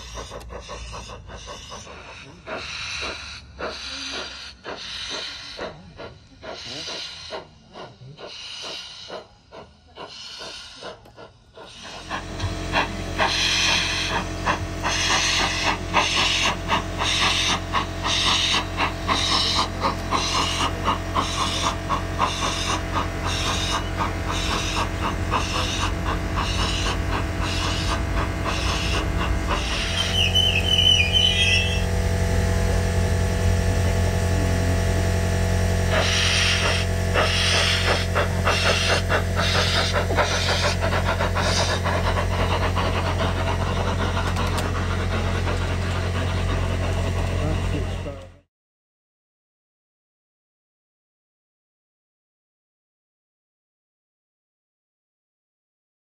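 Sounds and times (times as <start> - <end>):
wheels clicking on rails: 0.0 - 48.4
model steam locomotive chuffs: 0.0 - 48.5
steady hum: 20.7 - 45.4.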